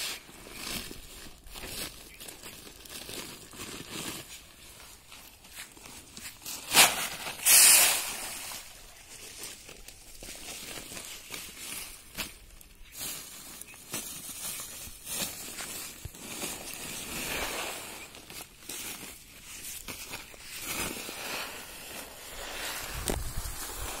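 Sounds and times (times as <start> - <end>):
loud plastic crackles: 0.0 - 24.0
plastic sacks rustling: 0.0 - 24.0
feed pellets pouring: 6.8 - 8.8.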